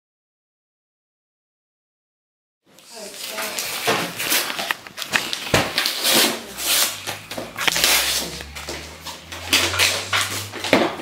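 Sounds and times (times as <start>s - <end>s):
wrapping paper tearing and rustling: 2.8s - 11.0s.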